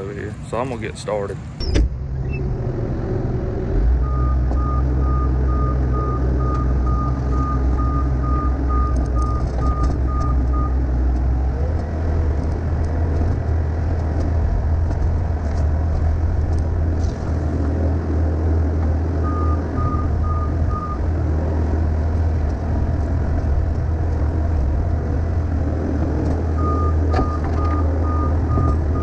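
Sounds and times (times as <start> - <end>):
skid steer engine running: 1.9 - 29.0
backup alarm beeping: 4.0 - 10.8.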